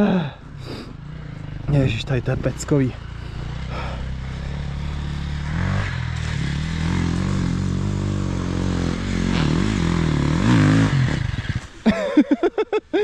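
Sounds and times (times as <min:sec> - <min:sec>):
motorcycle engine revving: 0:00.2 - 0:12.0.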